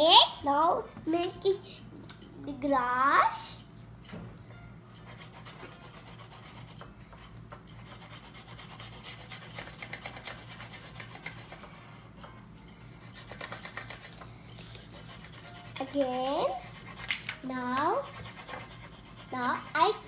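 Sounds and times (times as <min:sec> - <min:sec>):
marker pens scribbling on paper: 0:05.0 - 0:12.0, 0:13.0 - 0:20.0.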